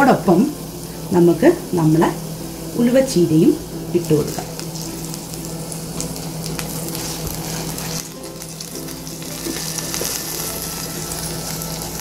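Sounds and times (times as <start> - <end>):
oil sizzling in a pot: 0.0 - 12.0
wooden spatula stirring: 6.9 - 8.1.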